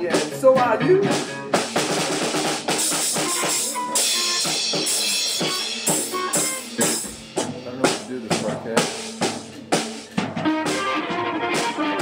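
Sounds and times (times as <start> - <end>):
drum kit beating: 0.0 - 12.0
rock band playing: 0.0 - 12.0
cymbals washing: 1.5 - 10.3.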